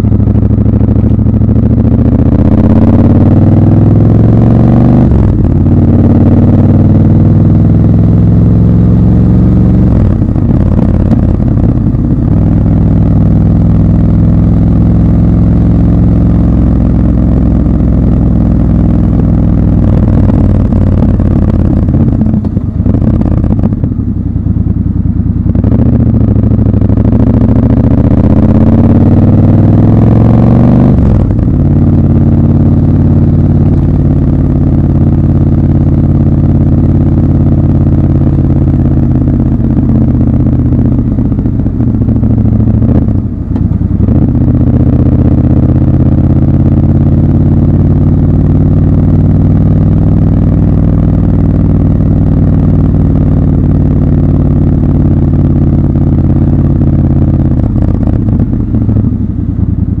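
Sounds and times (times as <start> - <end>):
motorcycle engine running: 0.0 - 60.0.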